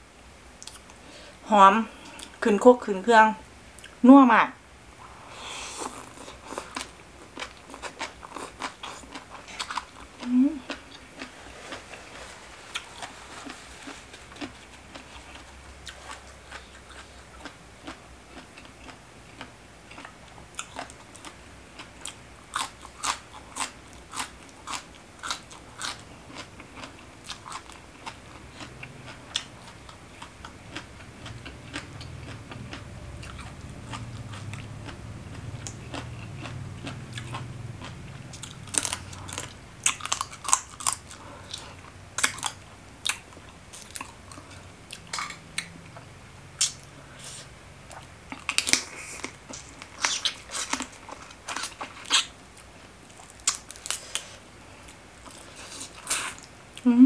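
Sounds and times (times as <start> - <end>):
crunching and chewing food: 0.6 - 1.1, 5.0 - 56.9.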